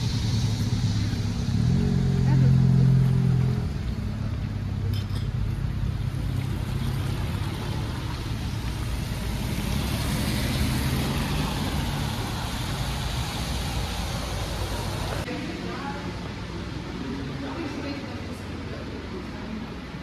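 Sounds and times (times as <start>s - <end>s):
car engine hum: 0.0s - 15.3s
tyres hissing on wet road: 0.0s - 20.0s.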